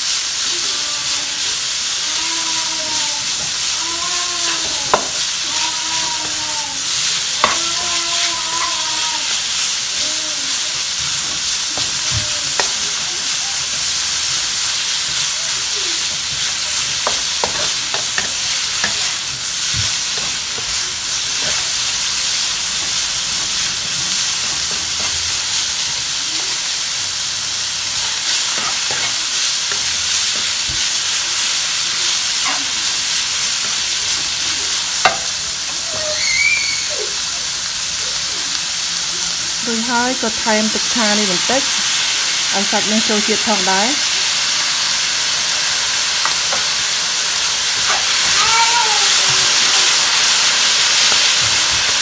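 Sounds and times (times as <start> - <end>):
meat sizzling in a pan: 0.0 - 52.0
whining cries: 2.0 - 9.4, 35.7 - 37.2, 47.9 - 49.2.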